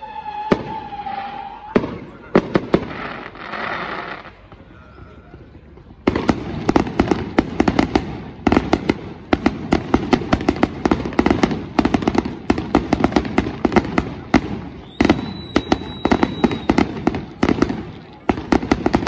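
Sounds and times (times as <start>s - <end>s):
high firework whistle: 0.0s - 4.3s, 14.4s - 17.7s
fireworks bangs and pops: 0.0s - 19.0s.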